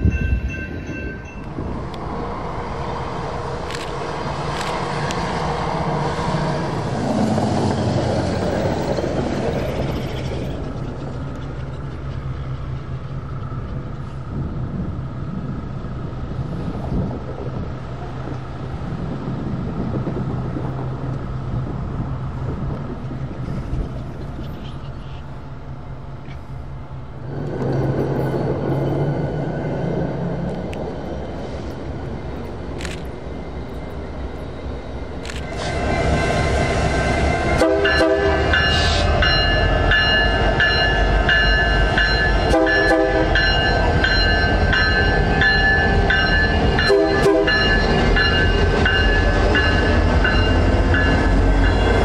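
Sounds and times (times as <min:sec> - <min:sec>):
diesel locomotive engines droning: 0:00.0 - 0:52.0.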